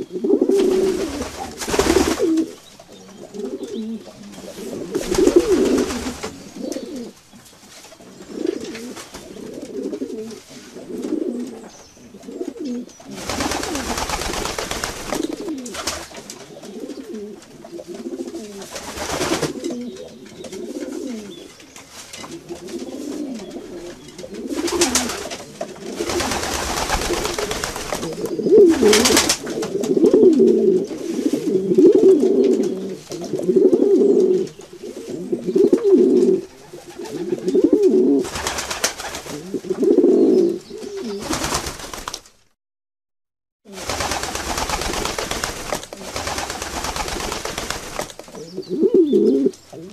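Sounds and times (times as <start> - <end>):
pigeons cooing: 0.0 - 7.2, 8.0 - 21.6, 22.2 - 41.5, 48.3 - 49.9
wings flapping: 0.5 - 2.6, 4.4 - 6.9, 13.1 - 17.2, 17.9 - 19.8, 22.0 - 30.4, 38.2 - 39.6, 40.9 - 42.5, 43.7 - 48.4.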